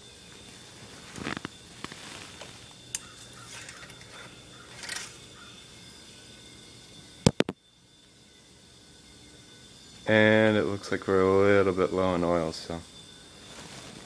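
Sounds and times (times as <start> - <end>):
handling rustles and clicks: 1.1 - 5.3.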